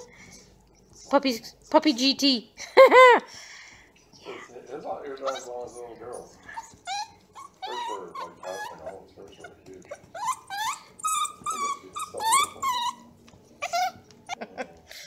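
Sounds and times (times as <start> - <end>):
puppy whining and yipping: 5.2 - 14.4.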